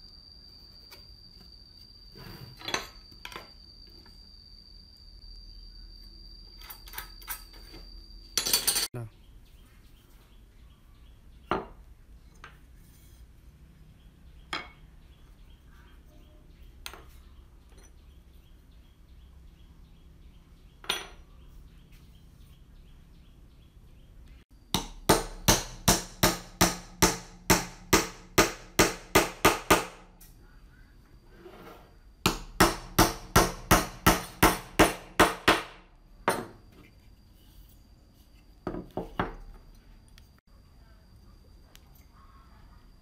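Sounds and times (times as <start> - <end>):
hammer driving nails into wood: 24.8 - 30.0.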